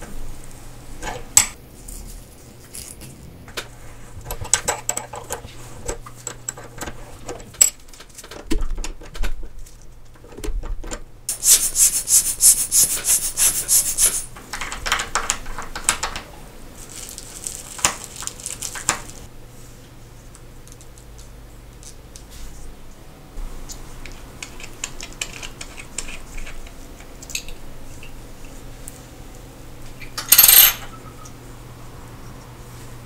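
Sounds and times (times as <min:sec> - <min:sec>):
quick rhythmic rubbing: 0:11.3 - 0:14.4.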